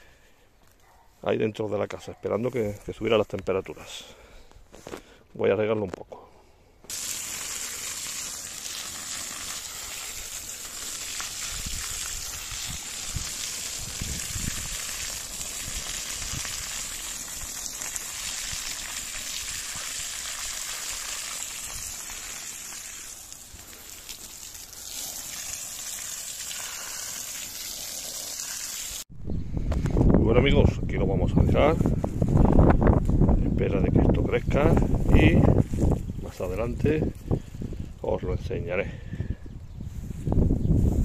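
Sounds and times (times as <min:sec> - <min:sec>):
hose water spraying onto soil: 0:06.9 - 0:29.1, 0:34.2 - 0:37.4.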